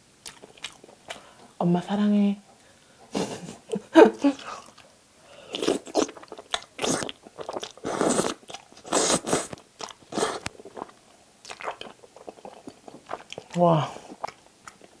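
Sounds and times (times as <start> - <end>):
wet slurping and chewing: 0.2 - 1.3, 4.4 - 15.0.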